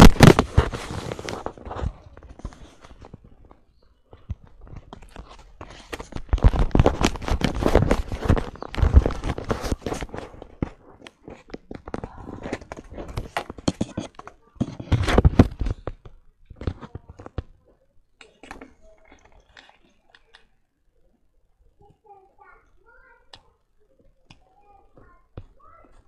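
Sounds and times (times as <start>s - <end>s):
camera handling knocks and rustles: 0.0s - 17.6s.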